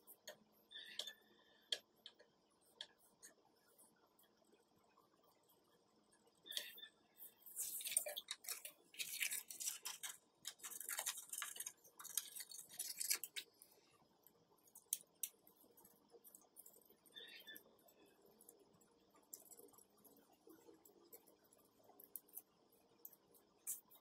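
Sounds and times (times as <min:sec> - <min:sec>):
paper rustling: 0:07.5 - 0:13.4
scissors snipping paper: 0:07.6 - 0:13.5.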